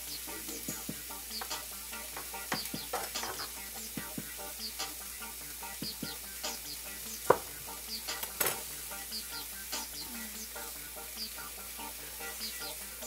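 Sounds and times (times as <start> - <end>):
food sizzling in a frying pan: 0.0 - 13.0
utensil clinking on pan: 1.4 - 3.6.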